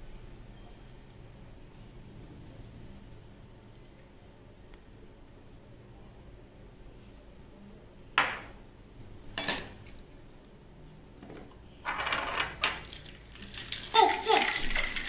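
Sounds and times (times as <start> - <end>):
utensil clinking in metal shaker: 12.6 - 15.0.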